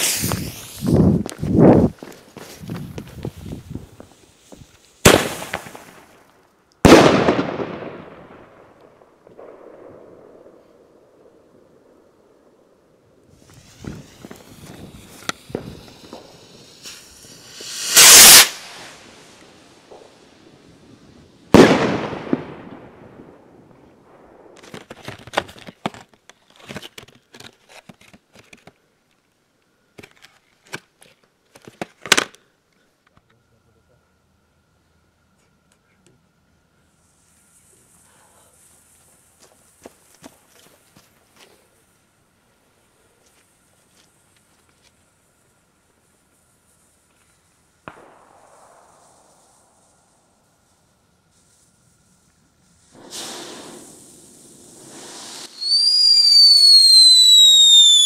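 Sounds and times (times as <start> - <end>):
firework bursting with a bang: 0.0 - 1.9, 2.6 - 6.1, 6.8 - 8.3, 13.3 - 20.4, 21.5 - 23.3, 47.8 - 50.3, 52.8 - 58.0
firecracker bangs with echo: 5.0 - 6.0, 21.5 - 22.9, 52.9 - 55.8.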